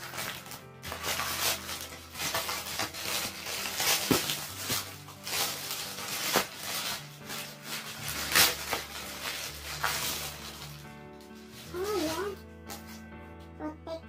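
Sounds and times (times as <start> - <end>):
plastic bag crinkling: 0.0 - 13.0
quiet background music: 0.0 - 14.0.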